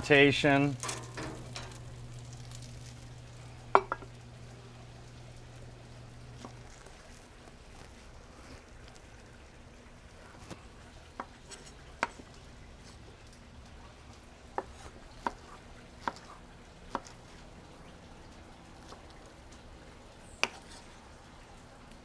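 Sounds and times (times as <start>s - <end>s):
knife chopping on wooden board: 14.5s - 16.3s, 16.9s - 17.2s, 20.4s - 20.7s.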